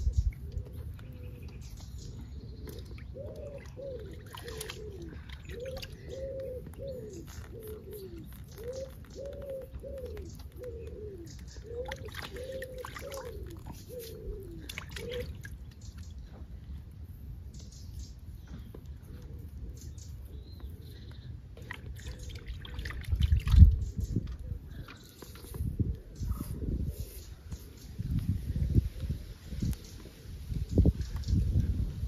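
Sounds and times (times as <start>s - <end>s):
pigeon cooing: 0.0s - 15.5s.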